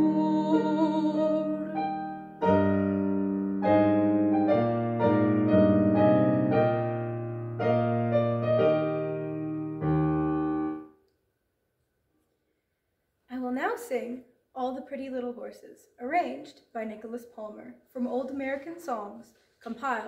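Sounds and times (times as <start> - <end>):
piano playing held chords: 0.0 - 10.9.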